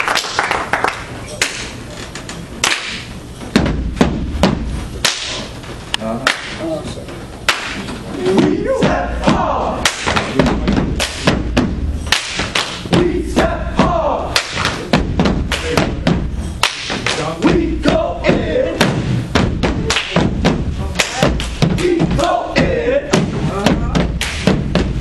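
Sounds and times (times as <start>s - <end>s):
feet stomping on stage floor: 3.4s - 4.9s, 8.3s - 25.0s
hands striking: 7.4s - 25.0s
shouted chanting: 8.2s - 9.9s, 13.0s - 14.4s, 21.1s - 24.0s.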